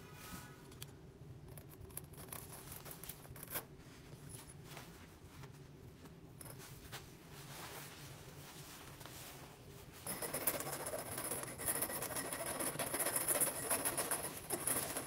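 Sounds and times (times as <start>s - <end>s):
hand tools clicking and scraping: 10.1s - 15.0s.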